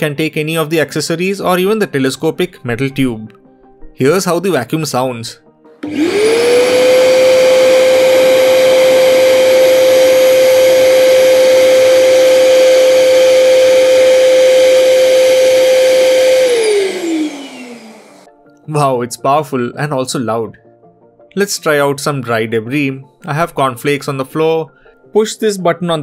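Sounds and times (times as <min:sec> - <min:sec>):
vacuum cleaner motor whine: 0:05.8 - 0:18.3
vacuum motor winding down: 0:05.8 - 0:18.3.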